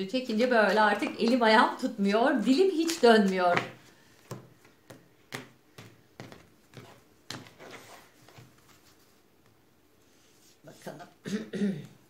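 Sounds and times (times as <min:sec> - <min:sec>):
cards clicking and tapping: 0:02.7 - 0:07.6.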